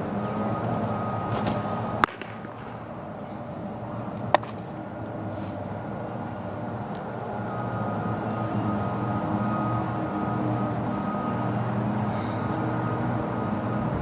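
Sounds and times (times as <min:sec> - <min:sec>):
steady mechanical hum: 0:00.0 - 0:14.0
baseball popping into mitt: 0:01.3 - 0:02.7, 0:04.3 - 0:04.6
ball smacking into glove: 0:04.3 - 0:04.6.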